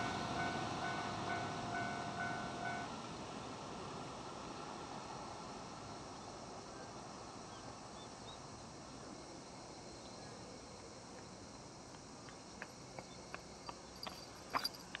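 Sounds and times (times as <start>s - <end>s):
insects chirring: 8.0s - 15.0s.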